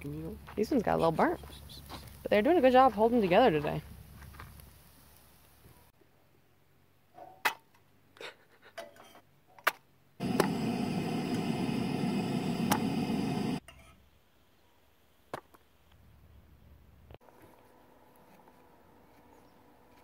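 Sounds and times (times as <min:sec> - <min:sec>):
steady rushing noise: 0:10.2 - 0:13.6.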